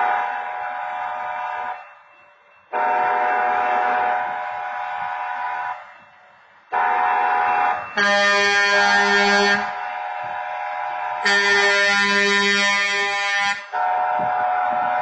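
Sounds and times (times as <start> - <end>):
crossing horn steady tone: 0.0 - 1.8, 2.7 - 15.0
train horn blasts: 2.7 - 5.8, 6.7 - 15.0.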